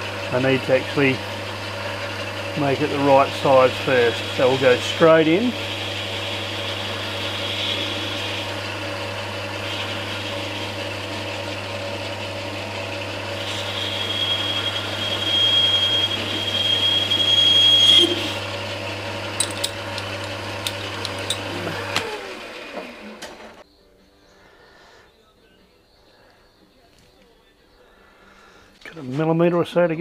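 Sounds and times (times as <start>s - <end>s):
lathe motor humming: 0.0s - 23.6s
motor running down: 0.0s - 23.6s
high-pitched cutting squeal: 0.4s - 23.1s.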